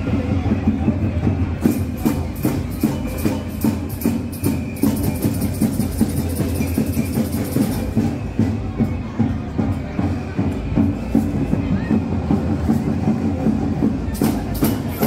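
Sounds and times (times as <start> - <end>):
drums steady beat: 0.0 - 15.0
hissing high percussion: 1.6 - 8.6.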